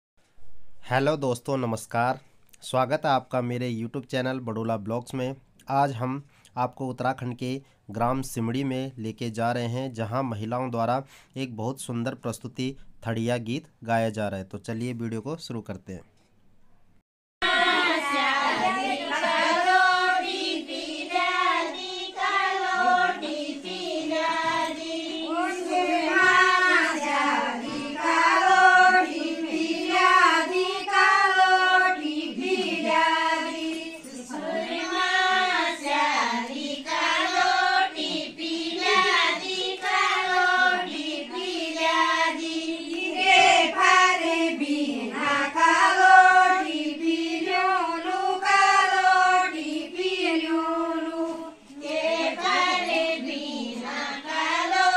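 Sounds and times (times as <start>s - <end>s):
women singing in unison: 17.4s - 54.9s.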